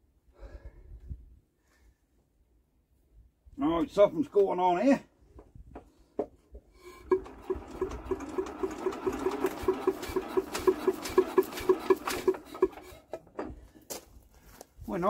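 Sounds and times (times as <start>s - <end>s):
diesel engine cranking and chuffing: 6.8s - 13.8s.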